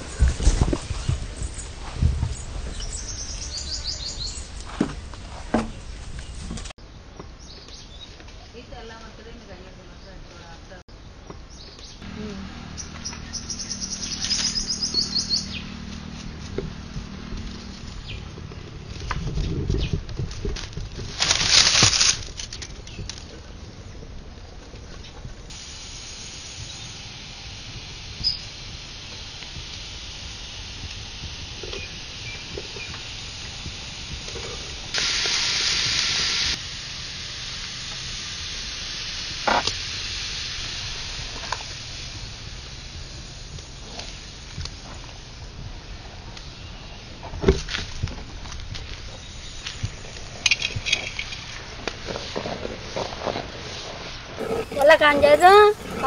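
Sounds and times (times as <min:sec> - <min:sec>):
pot of water hissing: 0:00.0 - 0:06.8, 0:12.0 - 0:19.9, 0:25.3 - 0:56.0
bird trilling: 0:12.8 - 0:15.6
dry twigs rustling and snapping: 0:15.8 - 0:23.5.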